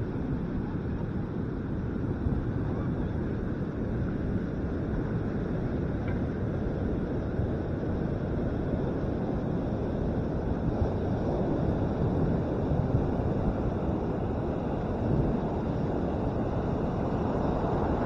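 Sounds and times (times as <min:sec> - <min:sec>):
wind buffeting microphone: 0:00.0 - 0:18.0
ocean surf breaking: 0:14.8 - 0:18.0.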